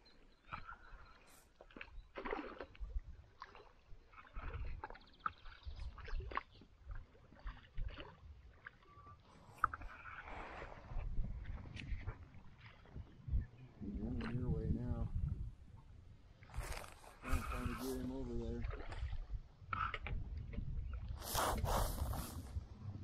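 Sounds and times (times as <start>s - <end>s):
water splashing around boat: 0.3s - 14.9s, 15.6s - 23.0s
wind rumble on microphone: 4.3s - 8.5s, 9.5s - 23.0s.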